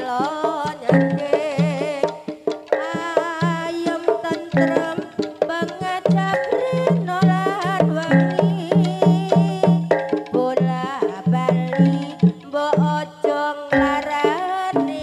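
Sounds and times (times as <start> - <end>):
drums keeping steady beat: 0.0 - 15.0
struck metal keyed instruments: 0.8 - 1.6, 4.1 - 10.5, 13.7 - 15.0.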